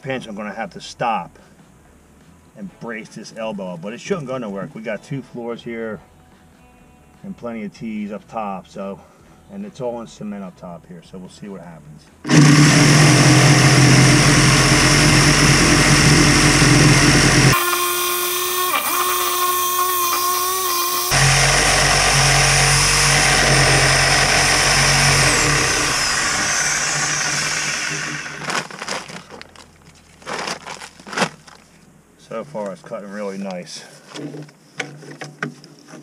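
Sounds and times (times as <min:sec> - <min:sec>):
reciprocating saw cutting pipe: 0:12.2 - 0:28.8.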